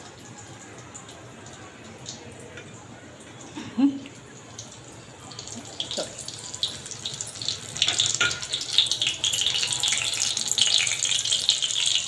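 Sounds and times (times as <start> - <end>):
food deep-frying in hot oil: 0.0 - 12.0.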